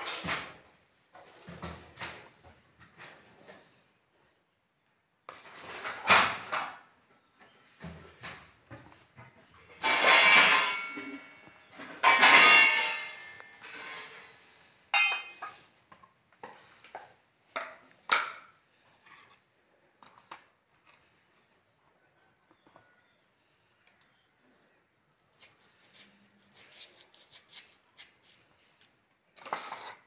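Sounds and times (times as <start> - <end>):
knife and plates clattering: 9.8 - 14.3, 15.0 - 15.8.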